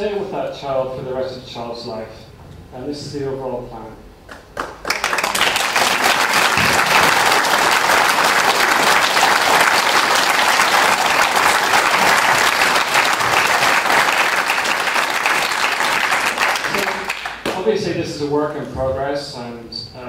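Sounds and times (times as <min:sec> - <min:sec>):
audience applauding: 0:04.3 - 0:17.7.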